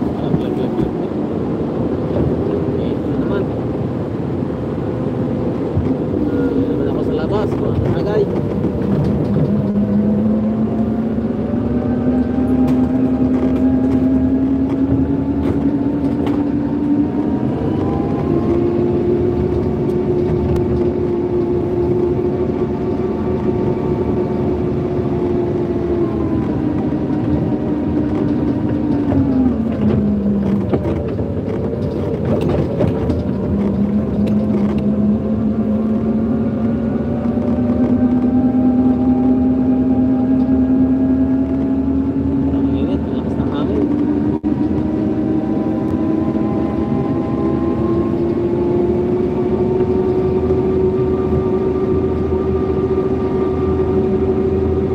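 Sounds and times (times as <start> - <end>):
forklift engine running: 0.0 - 54.9
sharp clicks and knocks: 7.4 - 10.1, 26.7 - 34.9.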